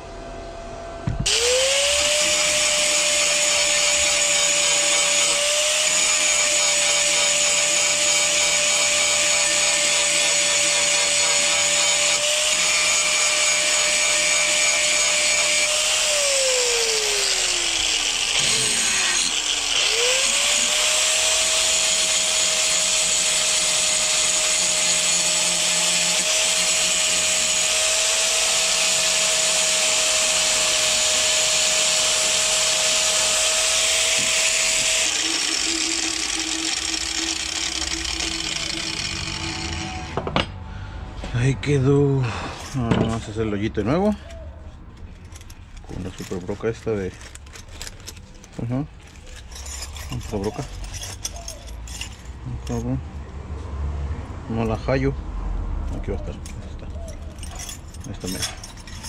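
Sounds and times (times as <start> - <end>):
angle grinder whining: 1.1 - 40.6.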